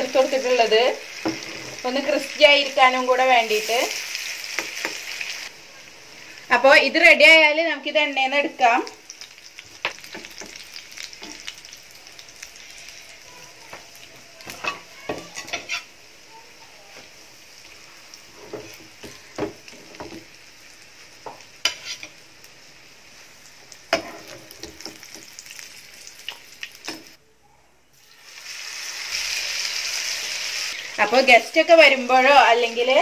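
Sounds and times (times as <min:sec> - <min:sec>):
spring rolls sizzling in oil: 0:00.0 - 0:27.2, 0:27.9 - 0:33.0
metal spatula scraping pan: 0:01.2 - 0:02.2, 0:14.6 - 0:16.0, 0:21.6 - 0:22.2.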